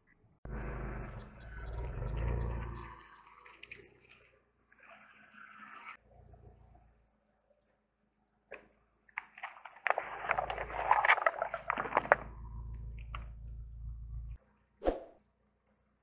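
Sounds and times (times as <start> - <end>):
car low rumble: 0.5 - 3.8, 10.3 - 14.4
paper cups crunching under tyre: 9.2 - 13.2.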